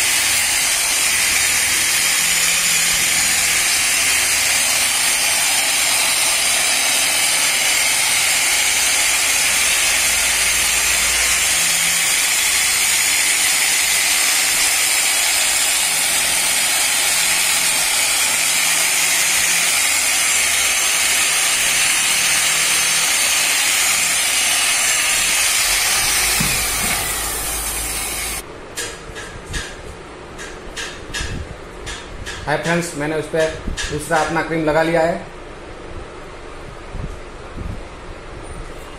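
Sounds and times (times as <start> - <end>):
angle grinder running: 0.0 - 28.4
motor winding down: 0.0 - 28.4.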